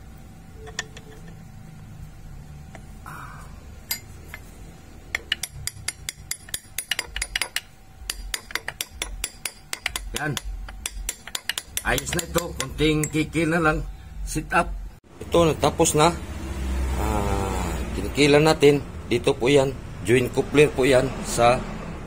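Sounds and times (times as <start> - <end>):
steel parts clinking: 0.6 - 1.5, 3.8 - 13.4.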